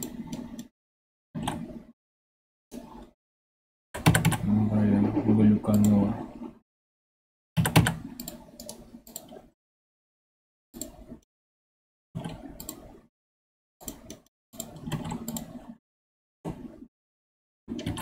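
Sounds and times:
computer keyboard typing: 4.0s - 4.5s, 7.6s - 9.3s.

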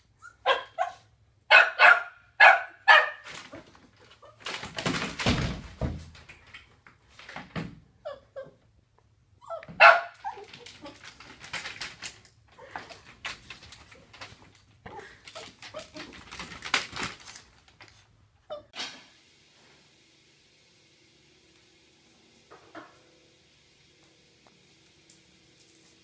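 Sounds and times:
puppy barking and yipping: 0.2s - 3.3s, 9.4s - 10.6s.

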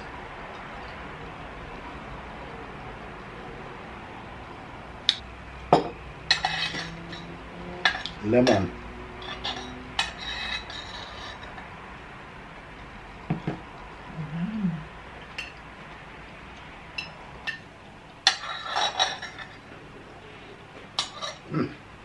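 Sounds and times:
cutlery clinking on plates: 5.1s - 11.7s, 18.2s - 19.7s, 21.0s - 21.5s.

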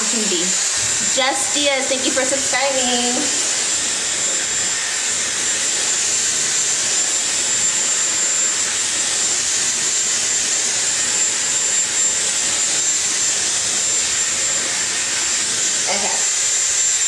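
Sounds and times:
hair dryer airflow: 0.0s - 17.0s
high-pitched motor whine: 0.0s - 17.0s.

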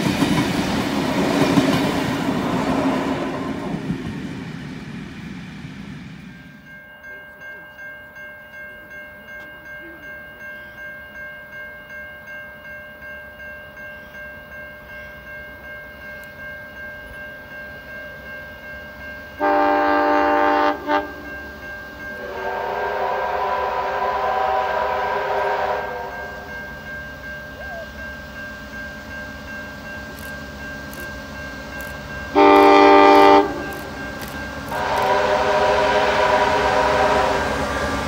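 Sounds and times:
hissy train whistle: 19.4s - 21.3s, 22.2s - 26.6s, 32.3s - 34.0s, 34.6s - 38.0s
train horn blast: 19.4s - 21.4s, 22.2s - 26.5s, 32.3s - 33.8s, 34.7s - 38.0s.

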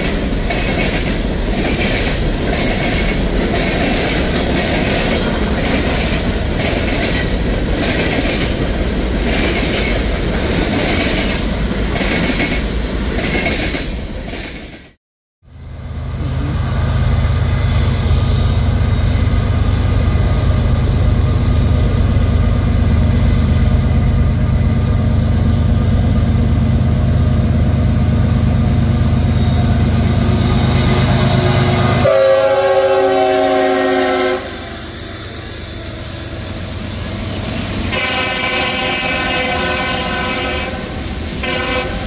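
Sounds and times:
locomotive engines rumbling: 15.5s - 42.0s
locomotive air horn: 31.2s - 34.8s, 37.9s - 42.0s.

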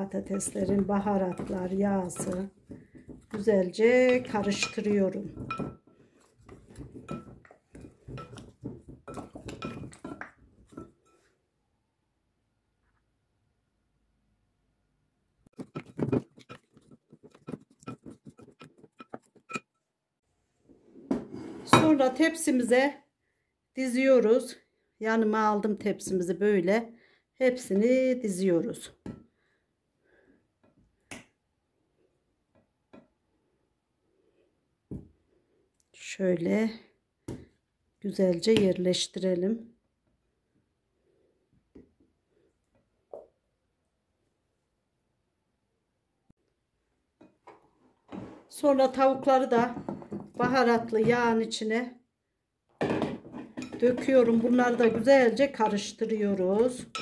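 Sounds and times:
wooden spoon knocking glass bowl: 0.2s - 3.4s, 4.0s - 5.8s.

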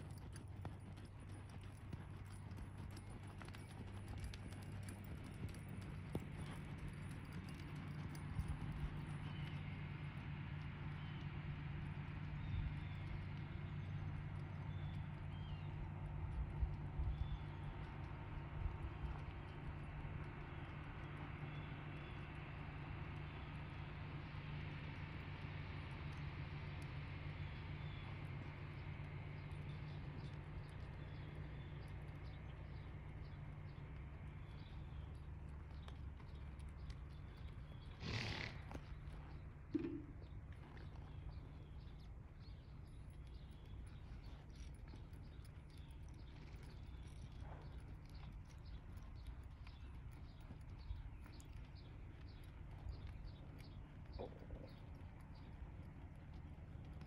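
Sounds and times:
horse hooves on soft dirt: 0.0s - 57.0s
low background rumble: 0.0s - 57.0s
low rumble: 34.5s - 57.0s
faint bird chirps: 52.2s - 55.5s.

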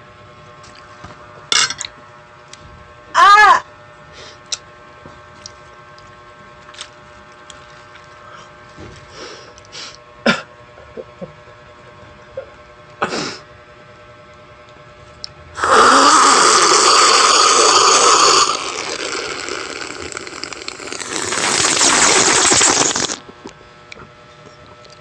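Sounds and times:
slurping and gulping drink: 15.6s - 23.4s.

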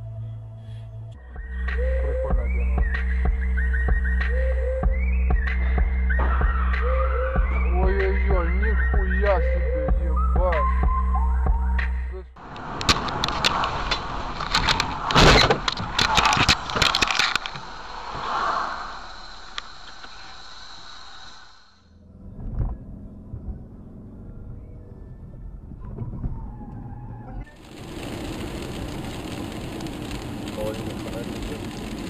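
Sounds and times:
car rumbling in motion: 0.0s - 20.6s, 21.8s - 32.0s
rain and tyres on wet road: 12.4s - 20.4s, 27.5s - 32.0s.

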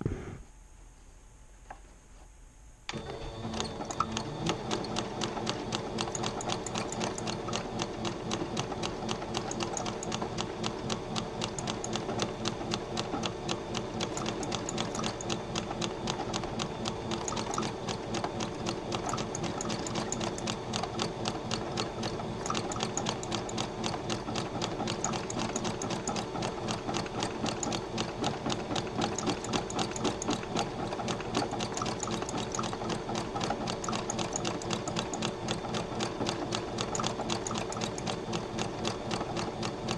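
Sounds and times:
sewing machine stitching: 2.9s - 39.9s.

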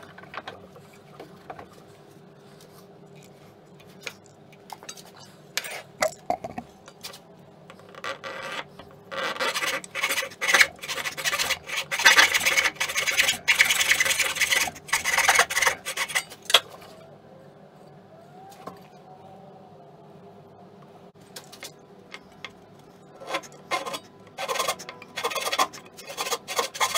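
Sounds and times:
saw rasping through wood: 9.4s - 16.3s, 23.2s - 26.9s.

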